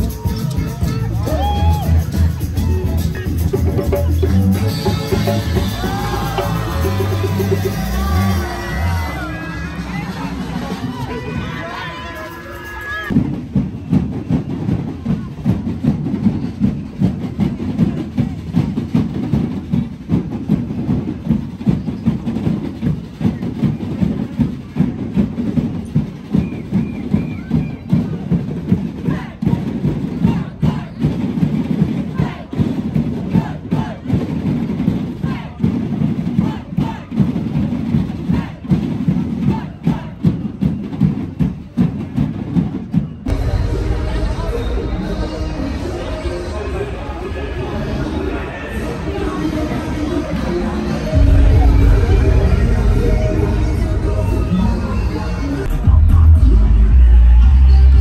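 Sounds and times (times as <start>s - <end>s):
music with a beat: 0.0s - 9.1s
rhythmic low drumming: 0.0s - 11.4s, 13.1s - 58.0s
group chanting and shouting: 0.0s - 13.4s, 26.4s - 41.0s, 43.3s - 58.0s
crowd noise: 0.0s - 58.0s.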